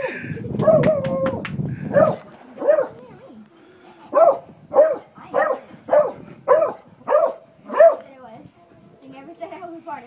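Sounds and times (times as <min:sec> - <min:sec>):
dog barking: 0:01.9 - 0:03.0, 0:04.1 - 0:08.1.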